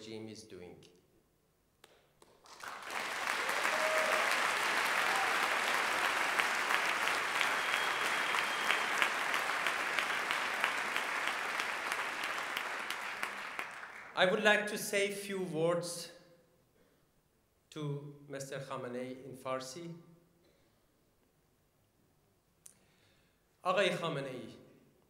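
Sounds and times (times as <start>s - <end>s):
audience applause: 2.4s - 14.2s.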